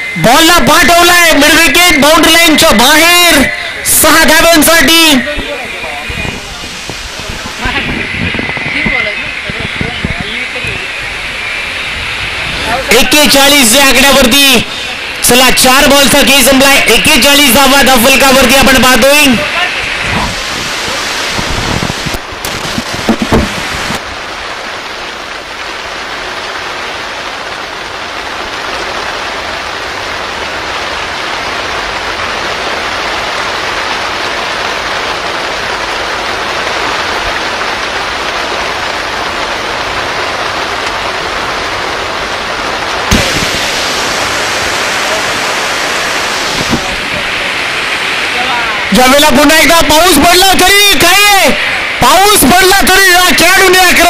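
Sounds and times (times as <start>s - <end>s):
steady rainfall: 0.0s - 54.0s
knocks: 22.4s - 23.6s.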